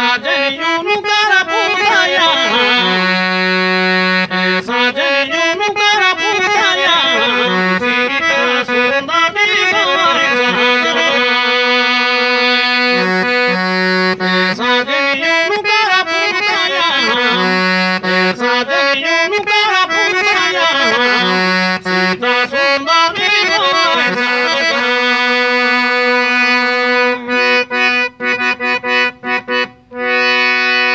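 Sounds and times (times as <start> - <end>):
harmonium playing folk melody: 0.0 - 30.9.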